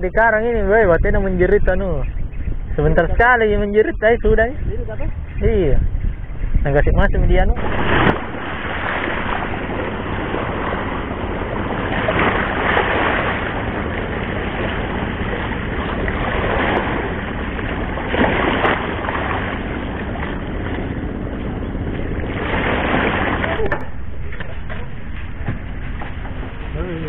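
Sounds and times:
wind on microphone: 0.0s - 27.0s
small waves lapping: 7.5s - 27.0s.

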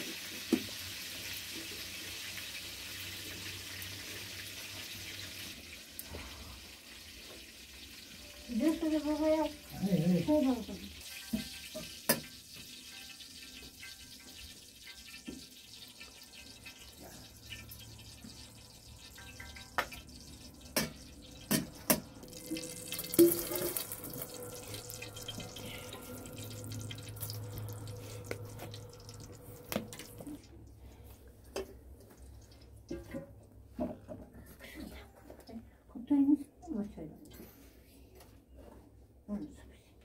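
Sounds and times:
water pouring and splashing: 0.0s - 33.5s
metal kettles clinking: 19.1s - 30.4s.

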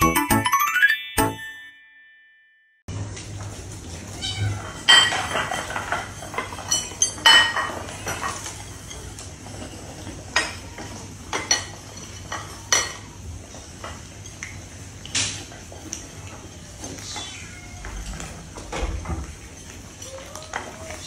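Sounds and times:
kibble clinking in ceramic bowls: 4.6s - 13.1s
kittens meowing: 17.0s - 18.4s.

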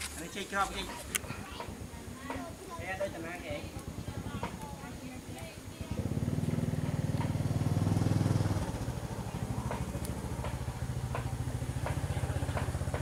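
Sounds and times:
small engine running: 2.7s - 13.0s.

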